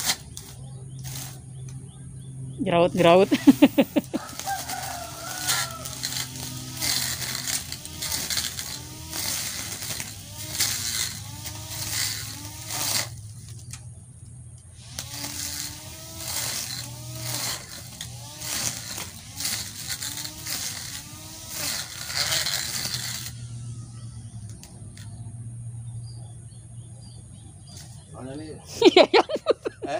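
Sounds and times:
grass trimmer cutting grass: 0:00.0 - 0:01.7, 0:03.0 - 0:13.8, 0:14.8 - 0:25.1.

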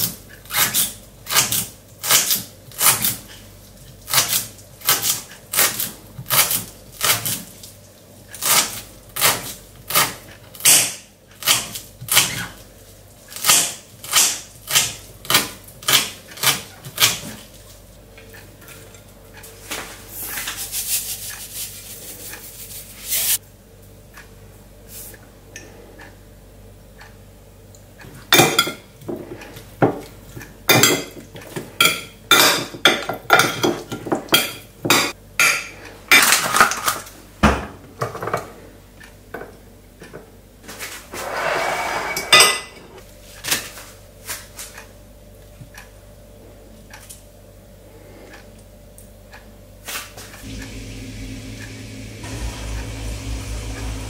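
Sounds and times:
utensils and dishes clinking: 0:28.3 - 0:29.2, 0:30.7 - 0:37.0, 0:41.3 - 0:43.0.

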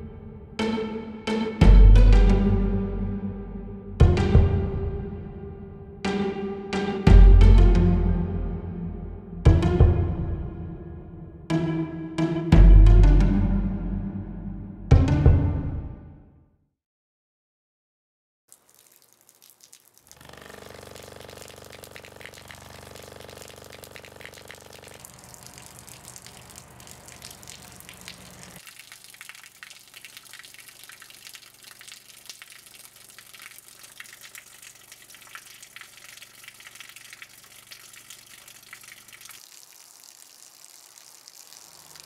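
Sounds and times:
water pouring and splashing: 0:18.5 - 0:42.0
low buzzing hum: 0:20.1 - 0:28.6.

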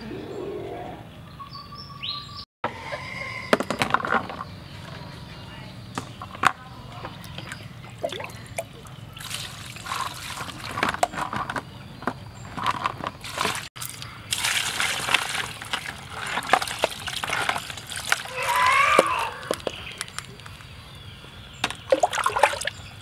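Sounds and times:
knocks of wet shells: 0:06.0 - 0:20.6
water splashing and trickling: 0:06.3 - 0:11.6, 0:12.6 - 0:23.0.

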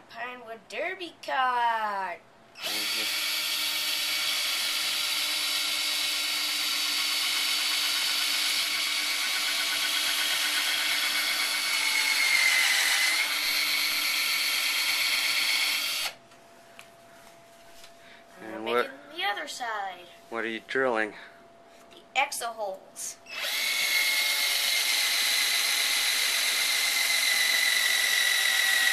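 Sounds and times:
cordless drill boring into wood: 0:02.6 - 0:16.2, 0:23.3 - 0:28.9.

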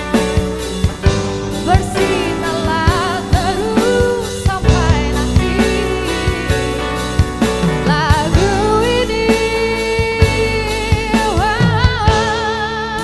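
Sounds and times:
live band playing: 0:00.0 - 0:13.0
woman singing: 0:01.6 - 0:13.0.

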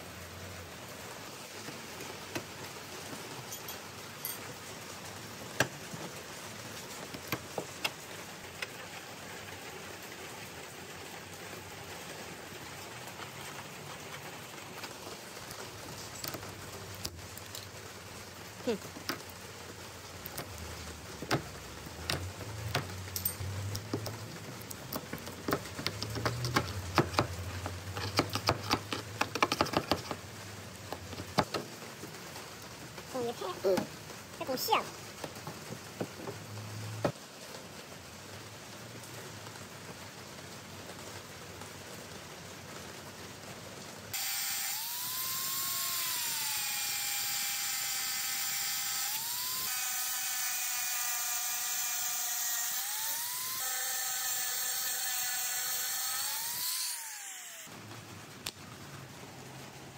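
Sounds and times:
metal scraper on plastic bumper: 0:25.0 - 0:30.2.

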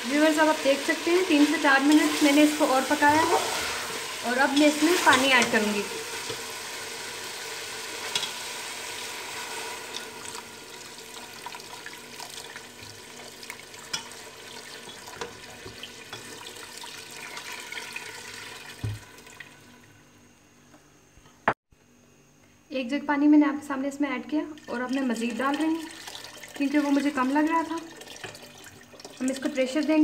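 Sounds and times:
water pouring into a pot: 0:00.0 - 0:19.9, 0:24.5 - 0:30.0
bubbling in a pot: 0:09.2 - 0:20.0, 0:24.5 - 0:30.0.

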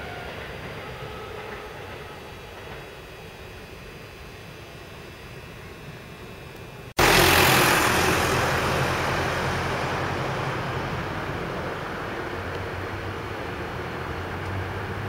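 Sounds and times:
road vehicle passing close: 0:07.0 - 0:15.0.

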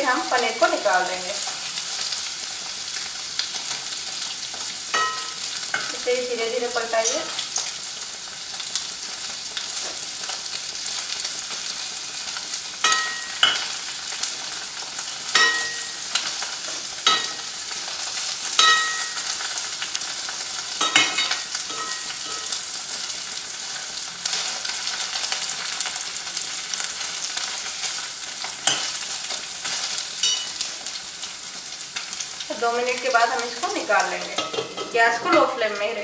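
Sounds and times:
cheese sizzling in oil: 0:00.0 - 0:36.0
metal spatula scraping pot: 0:20.8 - 0:22.6.

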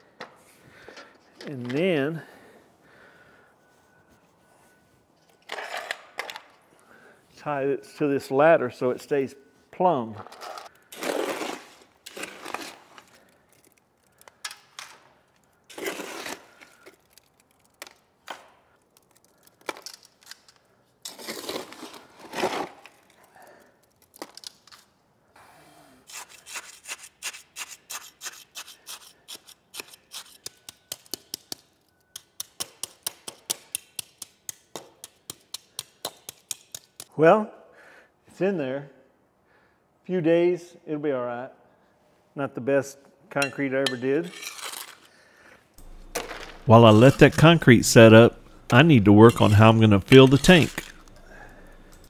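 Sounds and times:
wet concrete scraping and sloshing: 0:10.4 - 0:13.3
trowel tapping concrete: 0:29.8 - 0:37.1.

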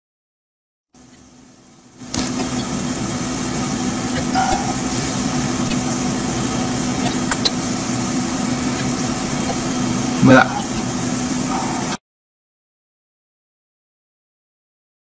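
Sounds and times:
steady mechanical hum: 0:01.0 - 0:12.0.

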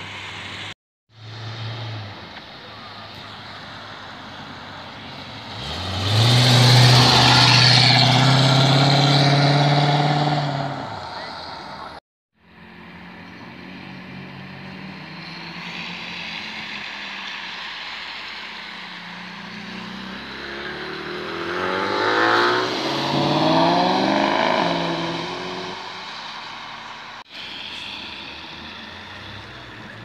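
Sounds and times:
car engine revving: 0:03.6 - 0:12.0, 0:13.0 - 0:30.0.

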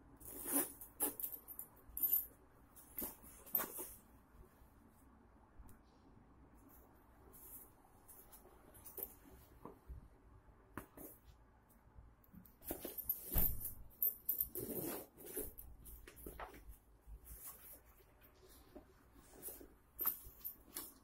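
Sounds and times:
backpack fabric rustling: 0:14.3 - 0:21.0.

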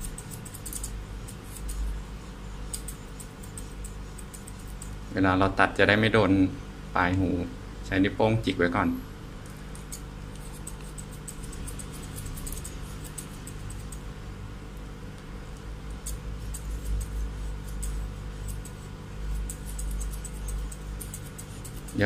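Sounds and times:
scissors snipping fur: 0:00.0 - 0:05.1, 0:09.4 - 0:14.1, 0:14.7 - 0:22.0
steady low hum: 0:00.0 - 0:22.0.

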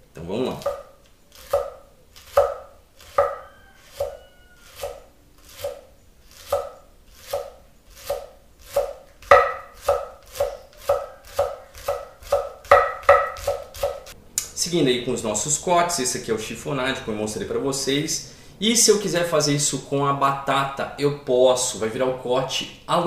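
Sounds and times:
knife chopping on wooden board: 0:00.6 - 0:14.2.

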